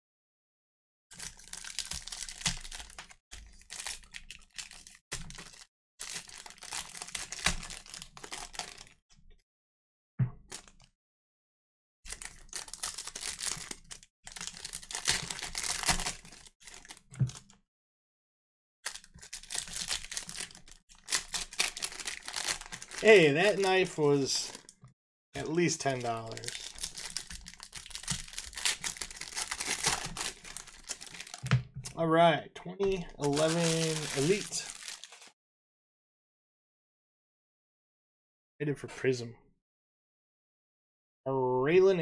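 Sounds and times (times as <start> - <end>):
wrappers tearing and crinkling: 1.2 - 9.0, 12.1 - 17.0, 18.8 - 24.7, 25.4 - 31.5, 33.2 - 35.4.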